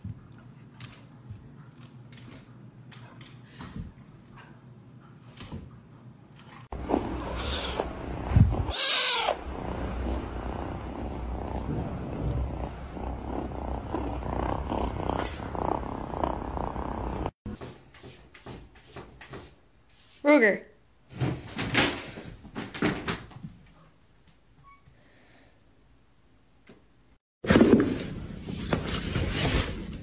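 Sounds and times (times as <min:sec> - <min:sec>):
kitten purring: 0:06.8 - 0:17.4.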